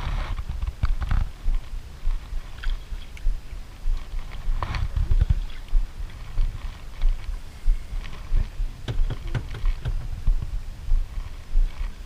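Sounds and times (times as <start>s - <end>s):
low rumble of wind: 0.0s - 12.0s
water around a wooden boat: 2.1s - 3.4s, 4.0s - 7.2s
sharp knocks: 8.8s - 10.4s.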